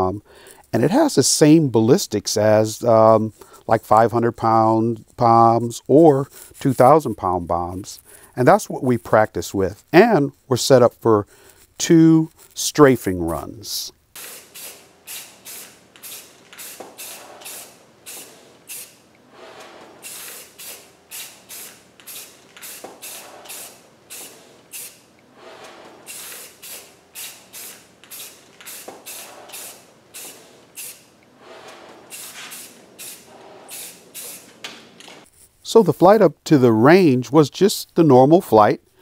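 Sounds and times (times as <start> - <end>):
spray paint can spraying: 14.1 - 25.1, 26.0 - 31.1, 32.1 - 34.7.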